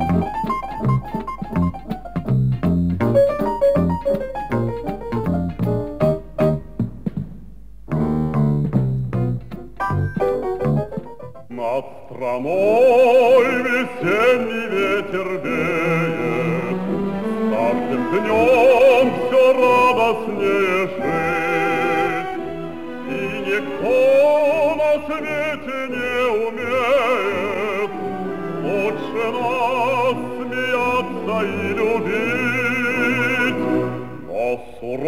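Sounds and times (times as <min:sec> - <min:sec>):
operatic singing with orchestra: 0:11.5 - 0:35.0.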